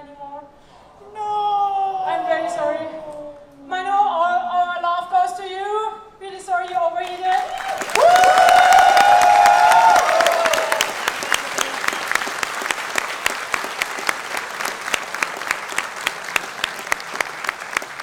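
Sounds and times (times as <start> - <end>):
audience rhythmic clapping: 6.7 - 18.0
crowd shouting: 7.5 - 10.9.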